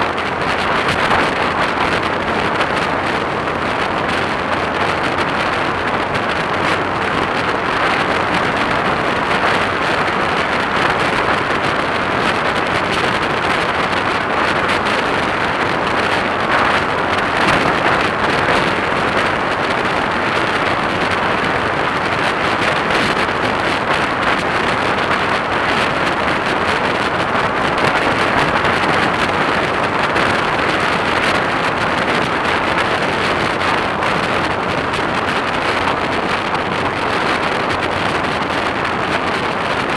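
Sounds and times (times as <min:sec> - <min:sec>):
motorcycle running: 0:00.0 - 0:39.9
wind rushing over microphone: 0:00.0 - 0:39.9.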